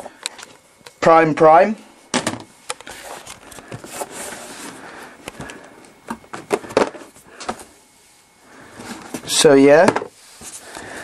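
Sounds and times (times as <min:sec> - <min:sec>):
packaging rustling and scraping: 0:02.8 - 0:07.8, 0:08.6 - 0:10.9.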